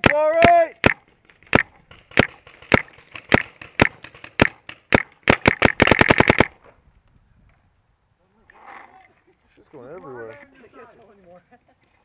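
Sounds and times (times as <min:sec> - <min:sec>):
paintball marker firing: 0:00.0 - 0:06.6.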